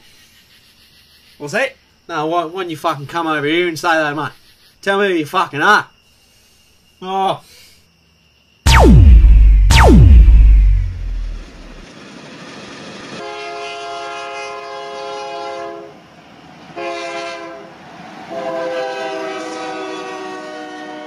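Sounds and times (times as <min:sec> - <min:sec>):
train horn blasts: 0:13.2 - 0:16.0, 0:16.8 - 0:17.7, 0:18.3 - 0:21.0.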